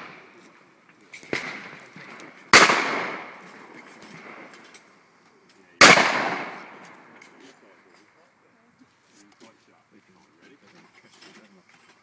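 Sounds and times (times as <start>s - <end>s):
shotgun blasts with echo: 1.2s - 3.5s, 5.8s - 6.8s.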